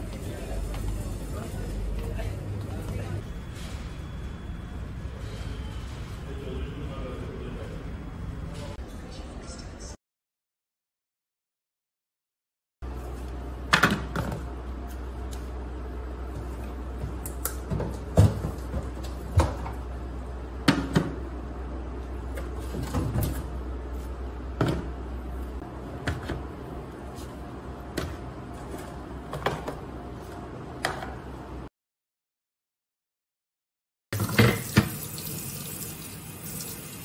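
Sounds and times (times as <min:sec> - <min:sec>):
refrigerator hum: 0:00.0 - 0:09.2, 0:12.8 - 0:31.7.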